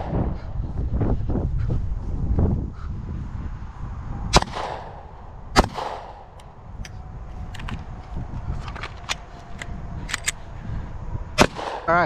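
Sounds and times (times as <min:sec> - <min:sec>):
pistol shots with echo: 0:04.3 - 0:05.0, 0:05.6 - 0:06.3, 0:11.4 - 0:12.0.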